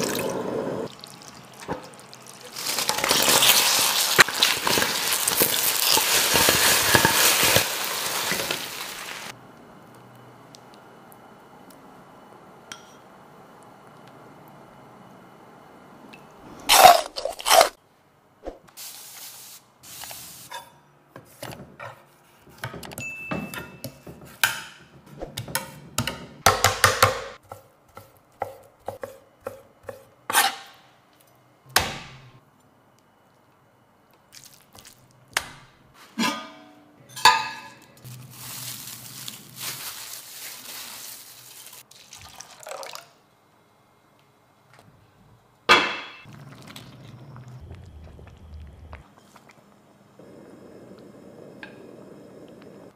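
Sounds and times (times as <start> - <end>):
water pouring into pot: 41.6 - 43.2.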